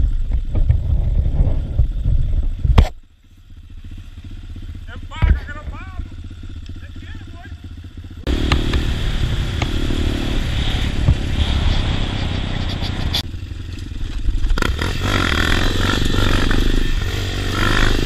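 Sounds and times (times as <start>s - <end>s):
wind noise on microphone: 0.0s - 3.0s, 8.3s - 13.3s
motorcycle engine running: 0.0s - 18.0s.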